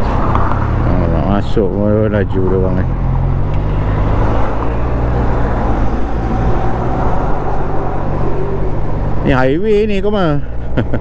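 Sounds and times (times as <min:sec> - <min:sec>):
road noise: 0:00.0 - 0:11.0
wind rushing: 0:02.9 - 0:09.5.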